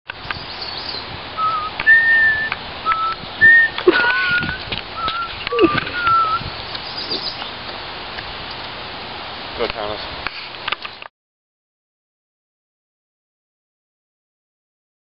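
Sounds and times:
person whistling a tune: 1.4s - 6.4s.

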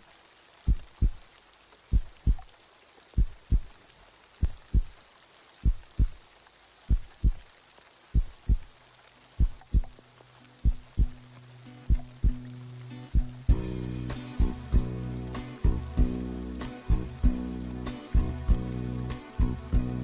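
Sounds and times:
heartbeat thumps: 0.7s - 1.2s, 1.9s - 2.5s, 3.2s - 3.8s, 4.4s - 5.0s, 5.6s - 6.2s, 6.9s - 7.4s, 8.1s - 8.7s, 9.4s - 10.0s, 10.6s - 11.3s, 11.9s - 12.5s, 13.2s - 13.8s, 14.4s - 14.9s
low steady tone: 9.4s - 11.2s.

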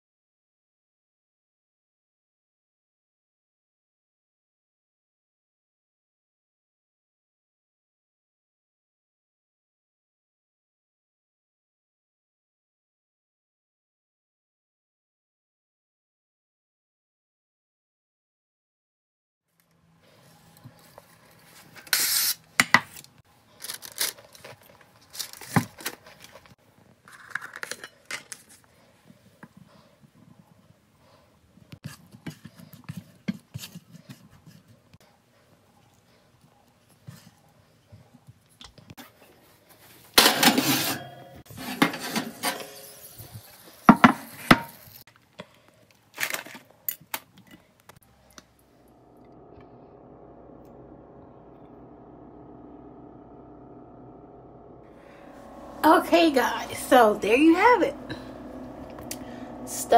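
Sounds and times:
utensils scraping ceramic dish: 40.4s - 43.2s.

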